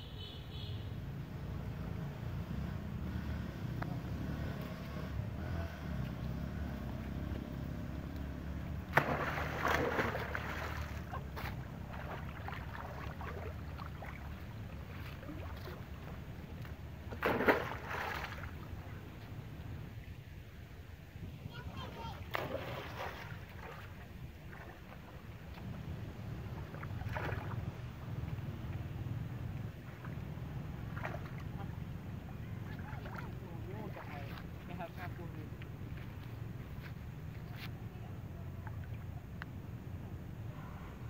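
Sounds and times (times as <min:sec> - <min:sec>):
monkeys splashing in water: 0:08.3 - 0:18.8, 0:22.3 - 0:28.4, 0:29.8 - 0:34.7.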